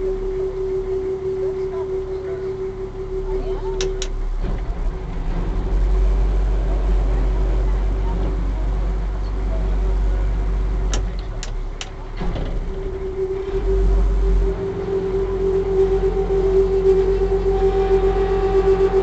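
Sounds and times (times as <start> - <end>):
ferry engine droning: 0.0 - 19.0.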